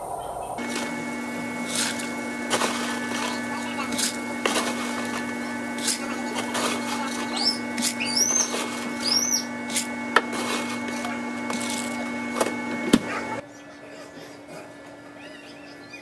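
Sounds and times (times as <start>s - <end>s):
appliance hum: 0.0s - 16.0s
high arching squeaks: 7.2s - 9.8s.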